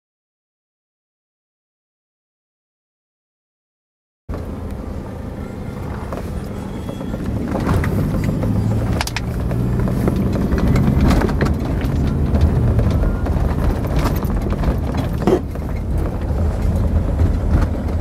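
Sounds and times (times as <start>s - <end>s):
car engine and road noise: 4.3s - 18.0s
knocks and rattles from bumps: 5.9s - 18.0s.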